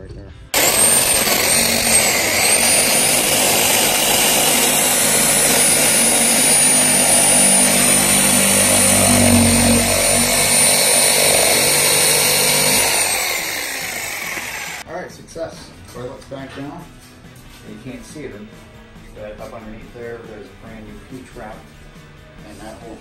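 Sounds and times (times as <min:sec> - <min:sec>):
reciprocating saw cutting plastic pipe: 0:00.6 - 0:14.8.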